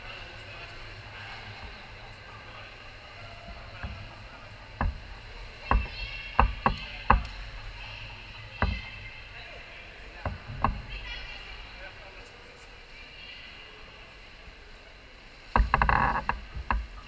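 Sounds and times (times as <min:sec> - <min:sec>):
distant noise: 0:00.0 - 0:12.2
water washing in pool hall: 0:00.0 - 0:17.0
sharp knocks: 0:03.4 - 0:07.6, 0:08.6 - 0:09.0.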